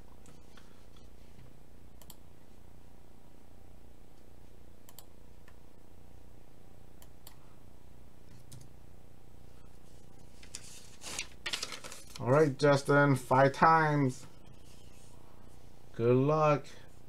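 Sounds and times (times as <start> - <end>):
low steady hum: 0.0 - 17.0
computer mouse clicks: 2.0 - 2.2, 4.9 - 5.6, 7.0 - 7.4.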